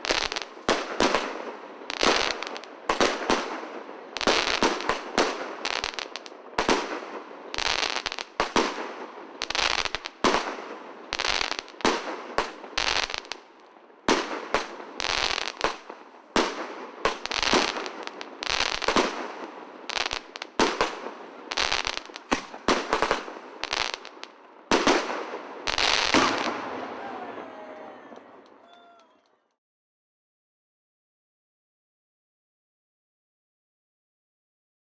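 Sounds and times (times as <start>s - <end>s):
firework glitter crackling: 0.0s - 26.6s.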